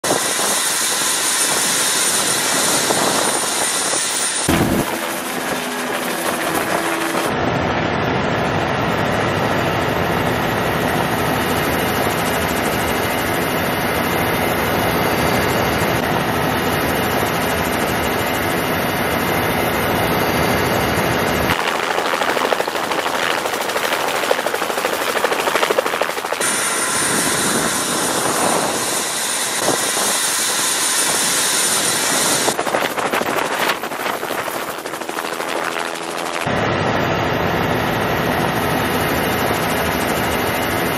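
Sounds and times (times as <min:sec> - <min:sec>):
helicopter rotor and turbine: 0:00.0 - 0:40.9.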